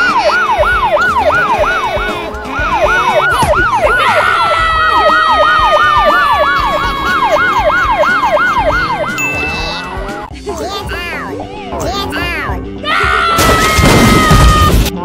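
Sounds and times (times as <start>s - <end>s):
slowly falling siren tone: 0.0s - 9.2s
police siren yelping: 0.0s - 10.3s.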